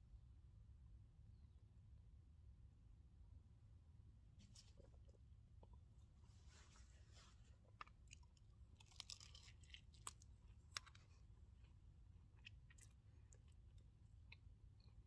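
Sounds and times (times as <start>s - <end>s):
low steady rumble: 0.0s - 15.0s
chewing crunches: 7.1s - 15.0s.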